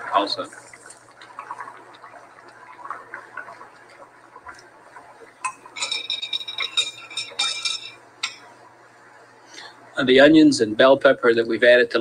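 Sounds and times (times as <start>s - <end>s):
pan simmering with faint bubbling: 0.0s - 12.0s
metal utensil clinking against pot: 5.4s - 8.5s.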